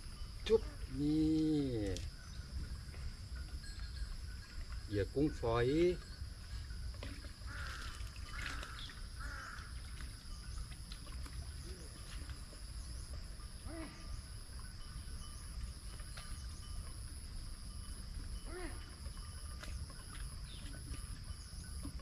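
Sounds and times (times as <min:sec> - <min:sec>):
birds calling harshly: 0:07.4 - 0:10.7.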